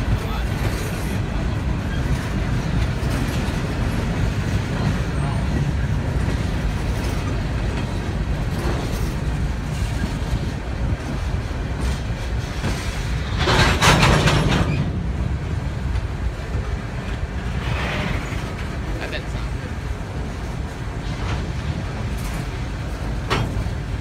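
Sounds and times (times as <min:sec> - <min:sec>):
rail cars clattering: 0:00.0 - 0:24.0
train wheels rumbling on rail: 0:00.0 - 0:24.0.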